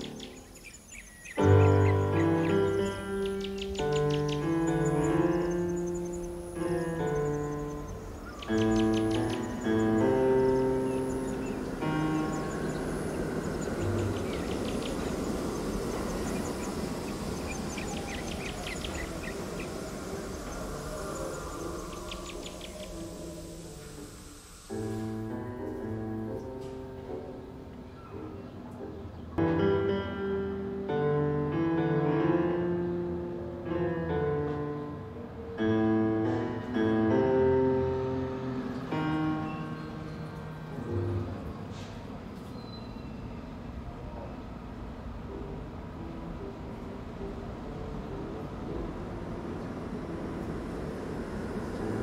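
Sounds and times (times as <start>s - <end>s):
faint high insect ticking: 0.0s - 24.7s
small birds chirping: 0.0s - 25.0s
piano playing slow chords: 0.0s - 52.0s
low rumbling background: 4.2s - 24.7s.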